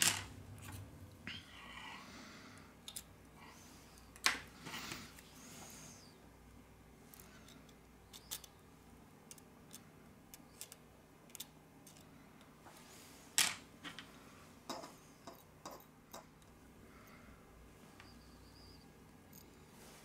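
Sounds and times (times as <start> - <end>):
hand tool clicking on smartphone parts: 7.1 - 8.6.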